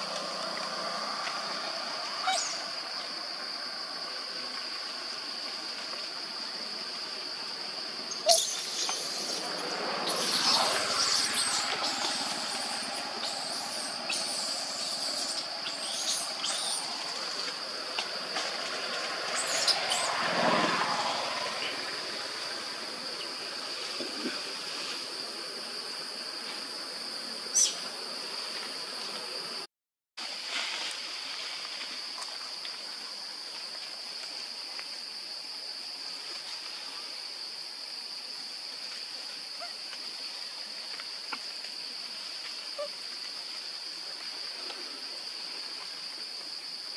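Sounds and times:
high-pitched insect drone: 0.0s - 4.0s, 8.0s - 24.0s.

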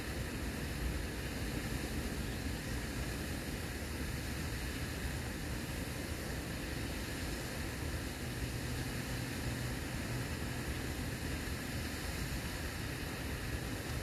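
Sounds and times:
even hiss with low rumble: 0.0s - 14.0s.

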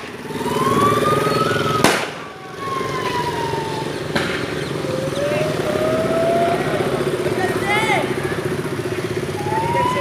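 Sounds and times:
motorcycle engines whining: 0.0s - 10.0s
sharp cracks: 1.7s - 2.3s.

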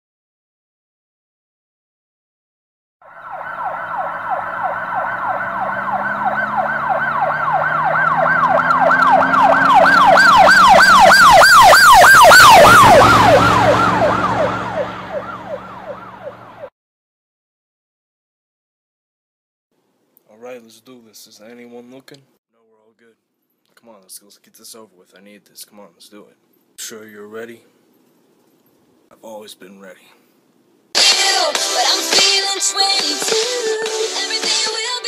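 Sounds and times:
siren yelping: 3.0s - 16.7s.

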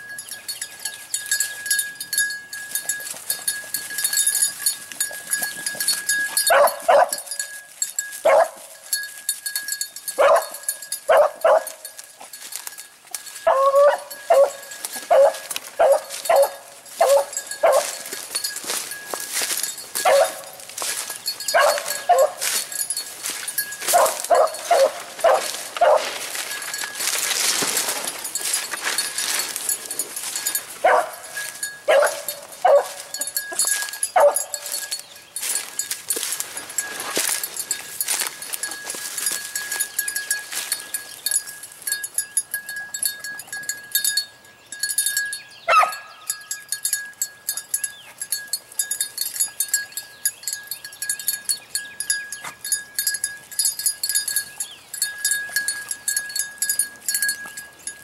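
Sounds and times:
brushy rustle: 2.8s - 42.1s
dog barking in short yelps: 20.1s - 20.4s.

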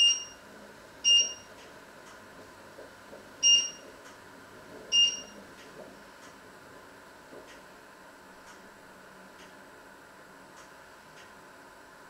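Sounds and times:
high electronic beeps: 1.1s - 1.4s, 3.4s - 3.8s, 5.0s - 5.3s.

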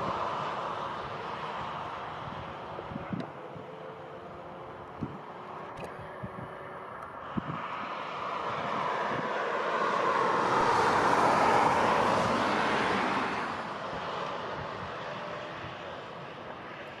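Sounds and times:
jet engines whining: 0.0s - 17.0s.

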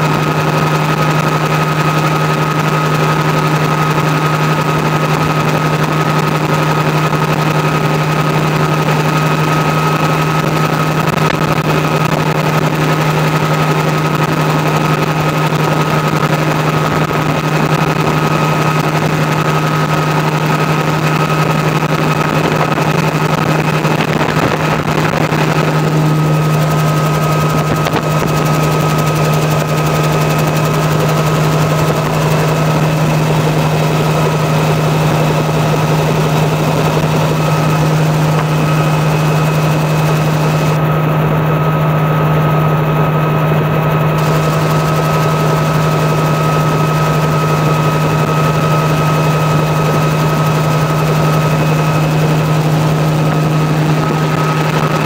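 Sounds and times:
helicopter engine and rotor drone: 0.0s - 55.0s
high whine: 0.0s - 55.0s.

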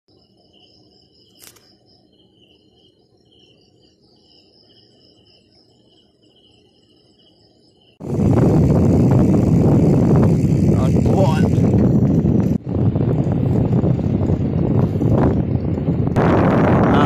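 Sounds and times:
faint crickets chirping: 0.1s - 17.0s
sharp click: 1.3s - 1.8s.

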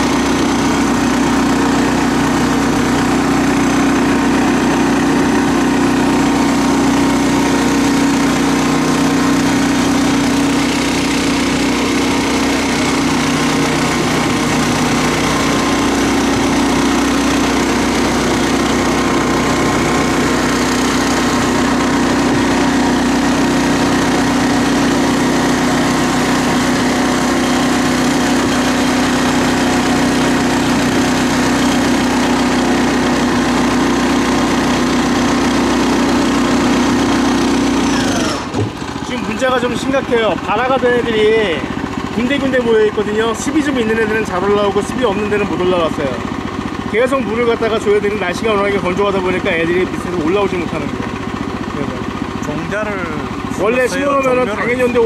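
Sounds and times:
small petrol engine droning: 0.0s - 55.0s.

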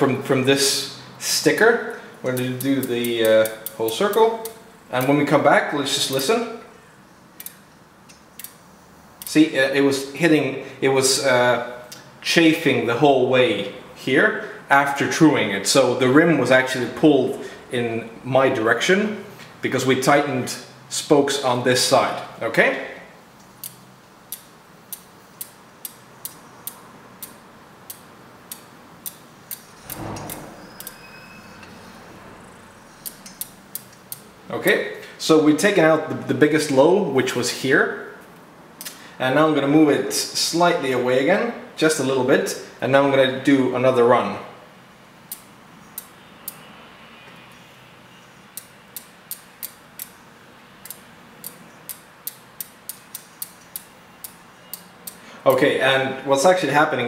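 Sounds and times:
bicycle wheel ticking against gauge: 23.6s - 29.7s, 50.8s - 55.2s.

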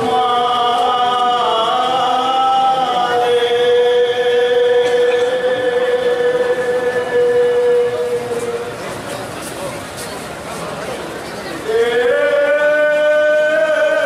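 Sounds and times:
men chanting long held notes: 0.0s - 8.8s, 11.6s - 14.0s.

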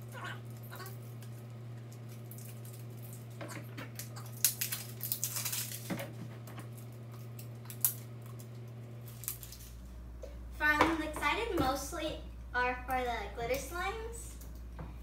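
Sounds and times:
steady low hum: 0.0s - 15.0s
plastic wrap crinkling: 0.4s - 9.9s.

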